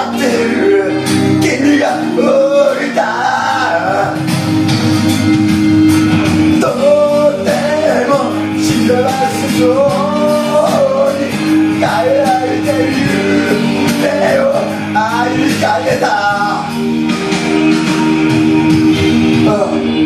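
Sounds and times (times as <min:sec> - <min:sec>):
man singing into microphone: 0:00.0 - 0:04.3, 0:06.5 - 0:16.8, 0:19.3 - 0:20.0
karaoke backing track with guitar: 0:00.0 - 0:20.0.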